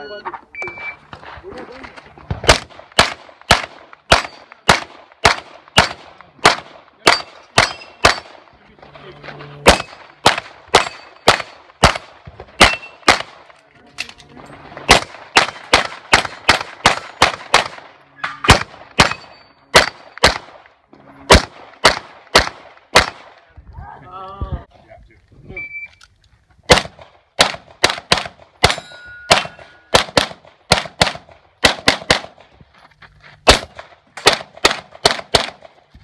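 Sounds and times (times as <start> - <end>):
rapid pistol fire: 2.4 - 8.4, 9.7 - 13.4, 14.9 - 17.9, 19.8 - 20.6, 21.3 - 23.4, 26.7 - 32.4, 33.5 - 35.8
steel targets ringing: 7.1 - 8.2, 18.0 - 20.3, 28.7 - 30.0.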